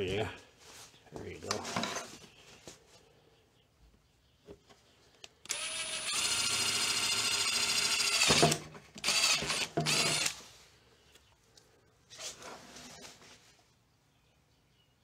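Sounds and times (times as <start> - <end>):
drill whining through plastic: 5.4 - 10.4.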